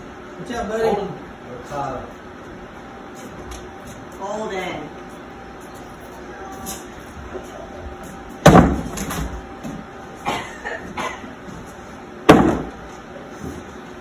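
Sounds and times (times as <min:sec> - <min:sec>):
bean bags thudding on wooden board: 0:12.3 - 0:12.7.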